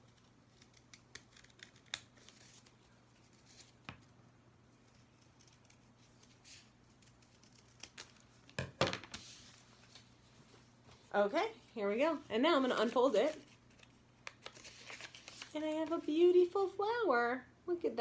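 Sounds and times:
scissors snipping paper: 0.1s - 2.4s, 4.8s - 8.2s
paper rustling: 9.1s - 11.1s, 12.6s - 16.1s.

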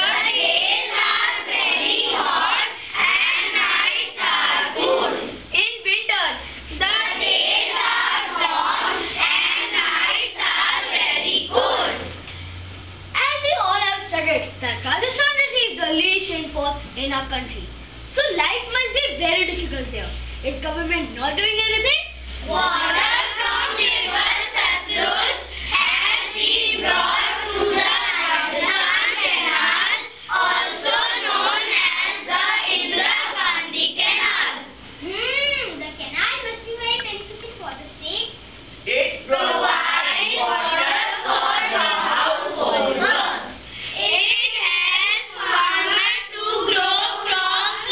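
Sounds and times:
children singing in unison: 0.0s - 5.3s, 6.8s - 12.1s, 22.5s - 34.7s, 39.3s - 47.9s
faint low hum: 0.0s - 47.9s.

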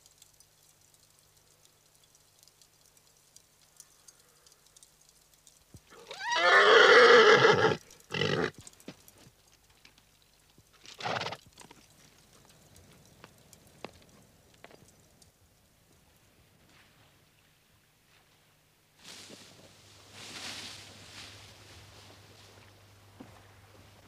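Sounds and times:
horse whinnying: 5.9s - 8.6s, 10.9s - 11.4s.

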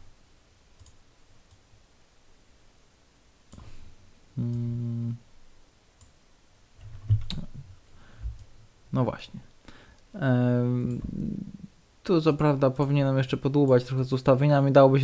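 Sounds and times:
computer mouse clicks: 0.8s - 1.6s
person humming: 4.4s - 5.2s, 10.3s - 11.7s.

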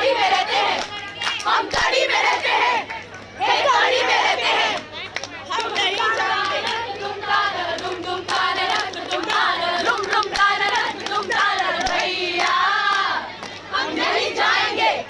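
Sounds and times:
women singing in chorus: 0.0s - 4.8s, 5.5s - 15.0s
hand clapping: 4.8s - 6.8s, 7.7s - 13.6s.

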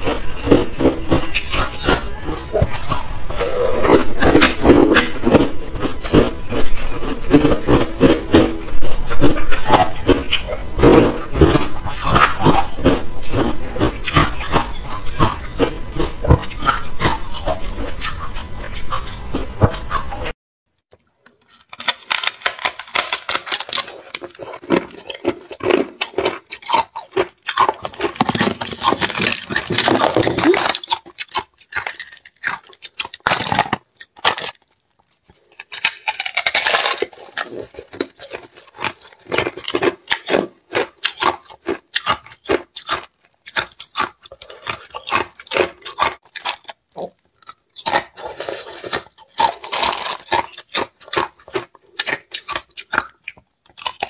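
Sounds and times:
ice crunched between teeth: 21.4s - 54.0s.

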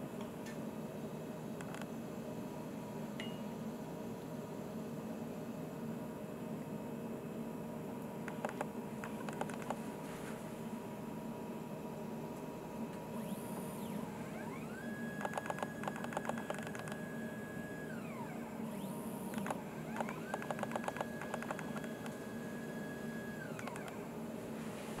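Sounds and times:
stepper motor whine: 13.1s - 24.1s
rapid clicking: 15.2s - 17.0s, 19.4s - 22.2s.

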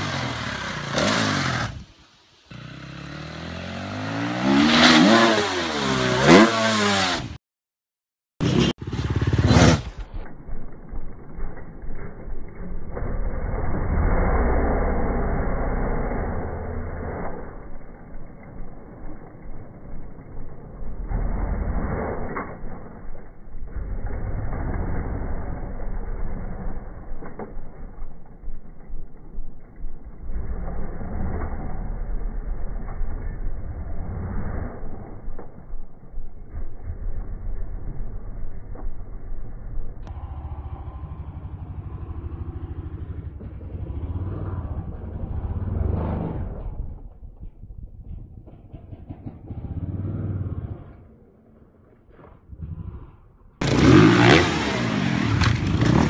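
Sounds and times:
dirt bike engine revving: 0.0s - 1.9s, 2.5s - 7.4s, 8.4s - 10.2s, 48.4s - 51.1s, 53.6s - 56.0s
dirt bike engine chugging: 8.4s - 12.9s, 34.9s - 45.6s, 47.5s - 51.0s
muffled dirt bike engine: 8.4s - 56.0s.

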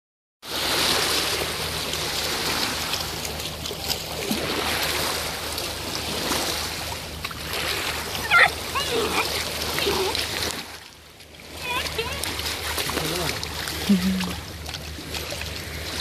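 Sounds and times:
stream rushing over stones: 0.5s - 16.0s.

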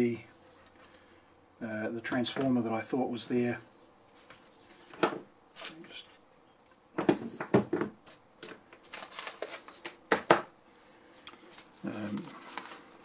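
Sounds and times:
objects rustling and knocking on workbench: 4.1s - 5.9s, 7.0s - 10.6s.

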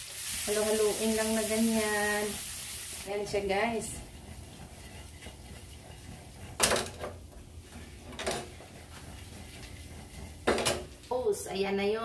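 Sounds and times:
metal pan clattering: 8.1s - 10.9s.

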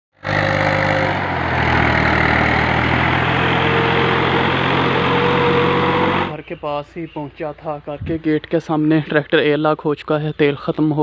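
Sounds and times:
tractor diesel engine under load: 0.1s - 7.8s.

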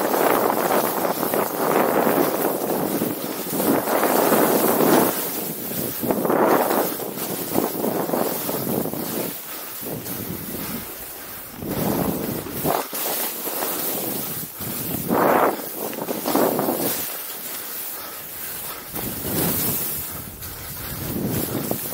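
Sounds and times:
wind on microphone: 0.0s - 17.2s, 18.0s - 21.9s
skis hissing through snow: 0.0s - 21.9s.

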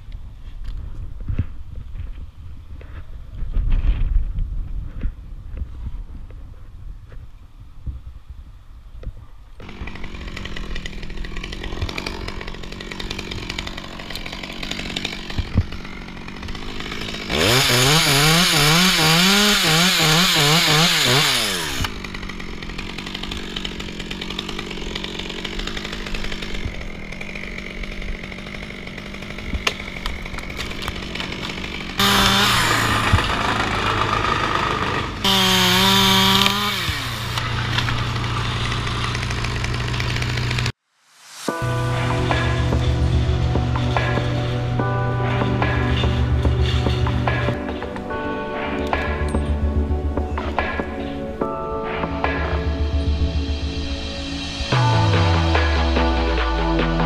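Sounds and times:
chainsaw idling and revving: 9.6s - 40.8s, 41.4s - 48.3s, 52.3s - 57.0s
chainsaw cutting wood: 9.6s - 49.5s, 53.9s - 57.0s.

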